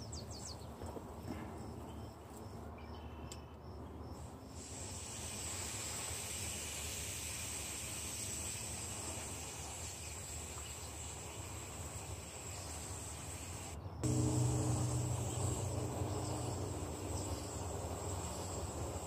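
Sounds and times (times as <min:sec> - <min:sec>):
pressure sprayer hissing: 0:04.6 - 0:19.0.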